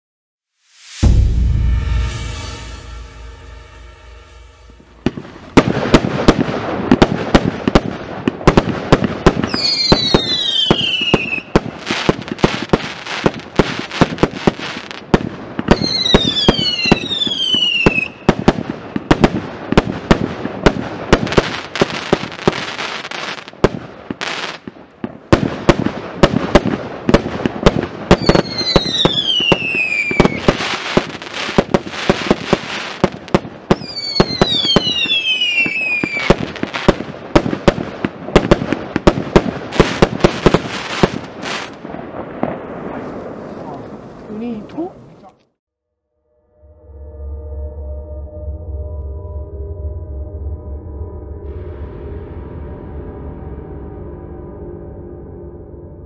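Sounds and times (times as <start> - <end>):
firework cake barrage with crackle: 5.5 - 45.4
falling firework whistles: 9.4 - 15.0, 15.7 - 19.2, 28.1 - 37.0.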